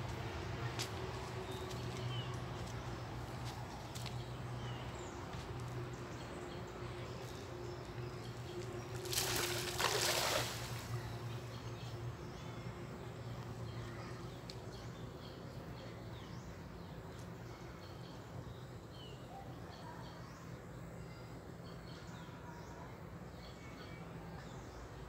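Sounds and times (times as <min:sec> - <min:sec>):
water sloshing around legs: 0:08.9 - 0:11.0
net splashing on water: 0:09.0 - 0:11.0.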